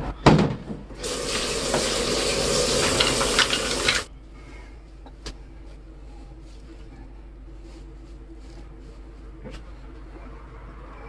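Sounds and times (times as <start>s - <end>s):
tap water running into metal sink: 1.0s - 4.1s.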